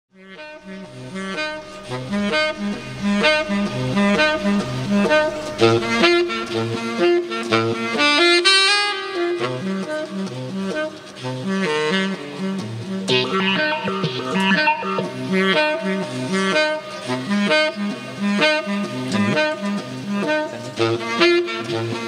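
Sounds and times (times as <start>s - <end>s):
tenor saxophone jazz melody: 0.2s - 22.0s
looped bass figure: 12.8s - 16.1s.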